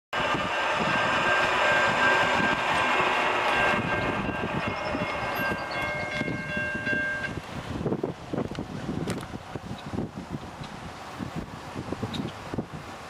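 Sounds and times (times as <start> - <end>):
train rumble: 0.1 - 13.0.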